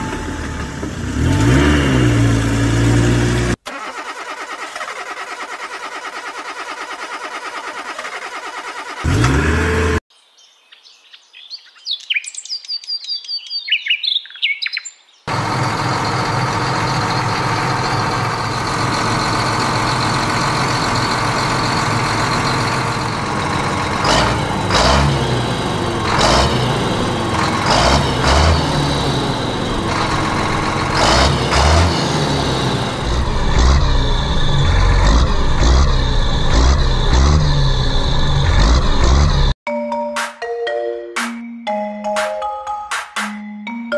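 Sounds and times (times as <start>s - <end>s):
tractor engine running: 0.0s - 10.0s, 15.3s - 39.6s
small birds chirping: 10.1s - 15.3s.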